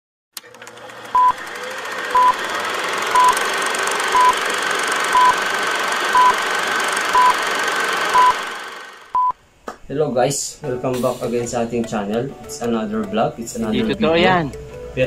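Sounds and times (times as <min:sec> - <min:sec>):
short high beeps: 0:03.2 - 0:03.4, 0:04.2 - 0:04.4, 0:05.2 - 0:05.4, 0:06.2 - 0:06.4, 0:07.2 - 0:07.4, 0:08.2 - 0:08.4.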